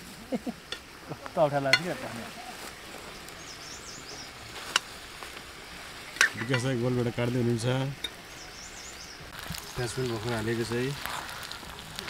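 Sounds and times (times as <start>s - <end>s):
steady hiss: 0.0s - 12.0s
faint high bird chirping: 3.0s - 4.4s, 8.2s - 10.0s.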